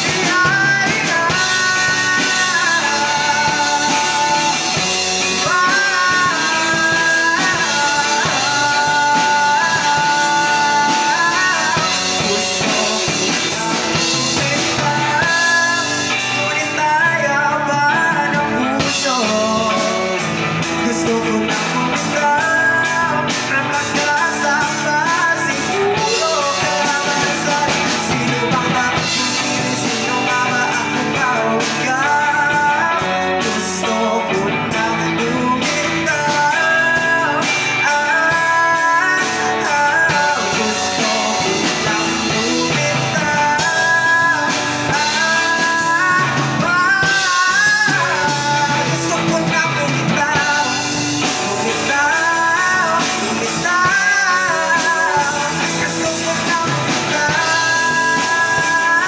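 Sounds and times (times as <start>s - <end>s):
drum kit: 0.0s - 59.0s
electric guitar: 0.0s - 59.0s
man singing into a microphone: 0.0s - 59.0s.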